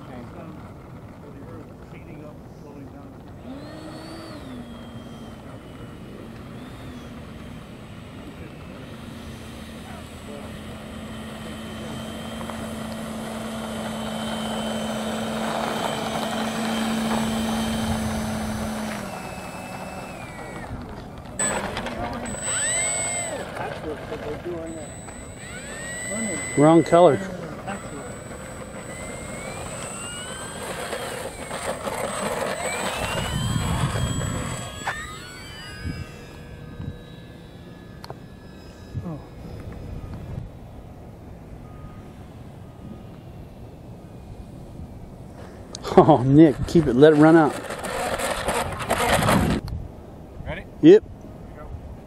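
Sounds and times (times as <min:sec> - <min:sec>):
electric ducted fan whine: 0:00.0 - 0:52.0.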